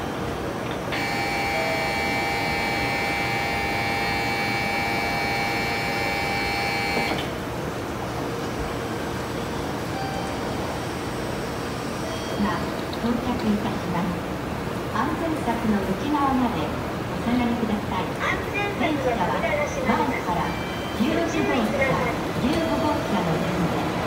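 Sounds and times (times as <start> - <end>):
electric ringing warning tone: 0.9 - 7.3
train doors sliding shut: 6.7 - 7.6.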